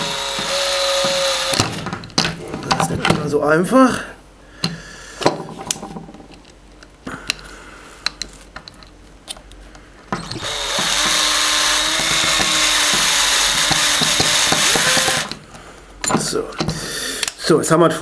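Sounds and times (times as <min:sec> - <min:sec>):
electric drill running: 0:00.0 - 0:01.9, 0:10.2 - 0:15.4
parts clicking and tapping: 0:04.6 - 0:17.4.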